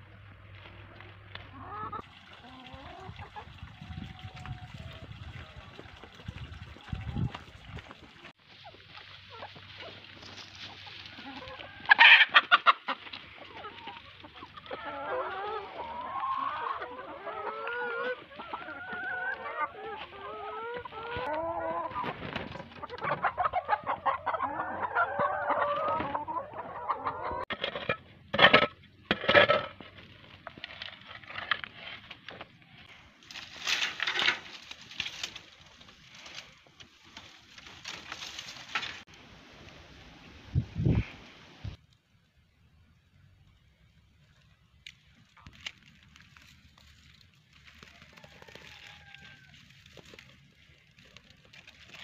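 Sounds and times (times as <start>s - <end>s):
hens clucking: 0.6s - 29.7s.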